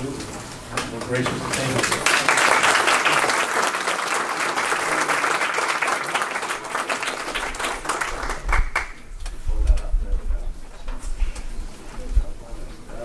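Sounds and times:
audience applause: 0:01.0 - 0:09.0.

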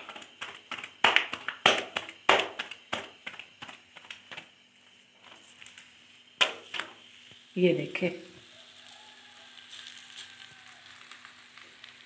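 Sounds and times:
hands slapping dough: 0:00.0 - 0:05.8, 0:06.4 - 0:07.0.

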